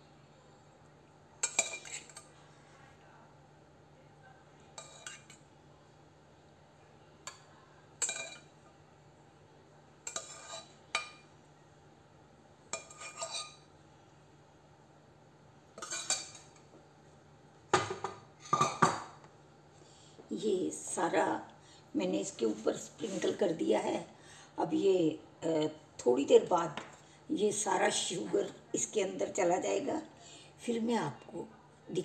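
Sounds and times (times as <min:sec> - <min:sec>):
faint steady hum: 0:00.0 - 0:32.0
spoon scraping steel bowl: 0:01.5 - 0:02.3, 0:10.1 - 0:10.8, 0:12.8 - 0:13.6.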